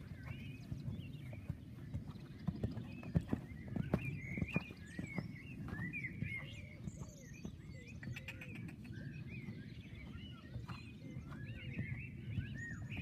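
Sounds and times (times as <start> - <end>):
horse hoofbeats on sand: 0.0 - 13.0
songbirds chirping and singing: 0.0 - 13.0.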